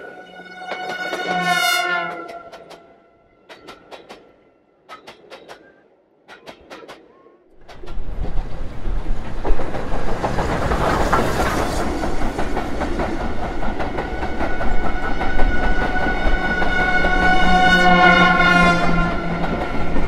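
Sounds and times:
steam train passing: 0.0s - 20.0s
wheels clicking over rail joints: 0.6s - 17.6s, 18.2s - 20.0s.

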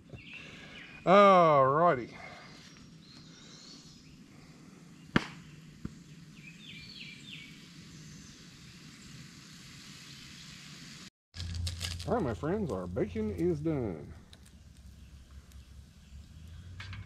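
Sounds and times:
bird chirps: 5.0s - 9.2s.

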